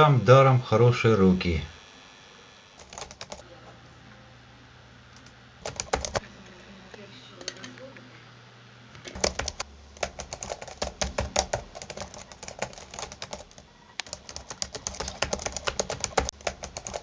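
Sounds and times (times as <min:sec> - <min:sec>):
typing on computer keyboard: 0:02.8 - 0:03.4, 0:05.6 - 0:06.2, 0:09.1 - 0:17.0.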